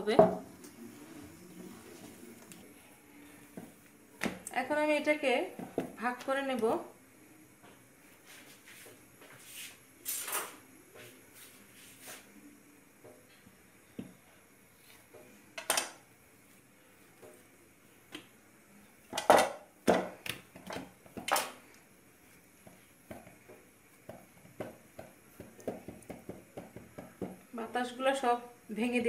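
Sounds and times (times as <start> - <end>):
patting dough: 19.9 - 27.5.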